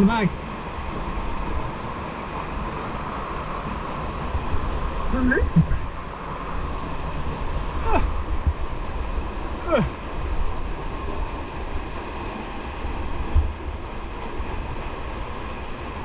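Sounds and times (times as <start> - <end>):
river water rushing: 0.0 - 16.0
wind buffeting microphone: 0.0 - 16.0
short cry gliding down: 7.8 - 8.2, 9.6 - 9.9.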